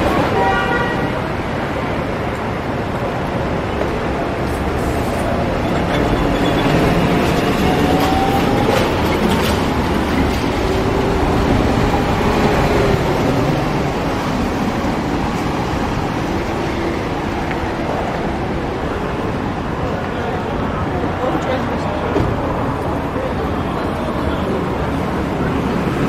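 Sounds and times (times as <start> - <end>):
street traffic: 0.0 - 26.0.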